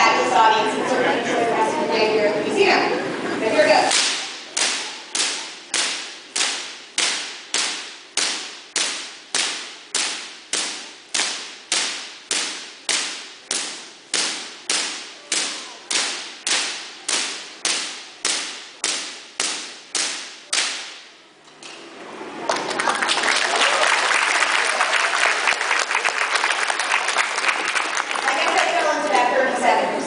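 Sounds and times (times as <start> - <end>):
high-voltage spark cracks: 3.9 - 21.2.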